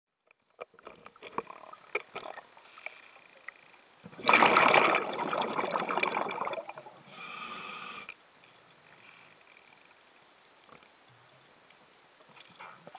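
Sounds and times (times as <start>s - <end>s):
exhaled bubbles underwater: 4.0s - 7.0s
hissing regulator inhalation: 7.0s - 8.2s.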